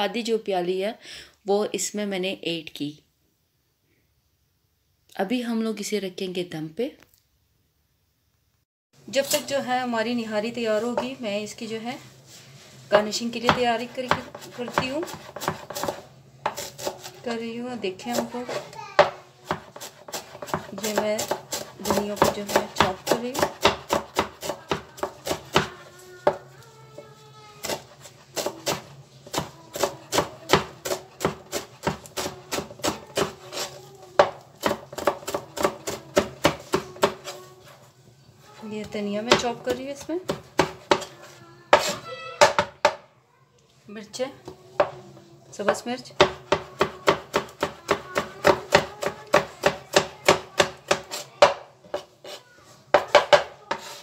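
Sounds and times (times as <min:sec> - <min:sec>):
knife chopping on plastic board: 0:13.4 - 0:17.2, 0:18.1 - 0:26.4, 0:27.6 - 0:37.4, 0:39.3 - 0:43.0, 0:45.7 - 0:54.0.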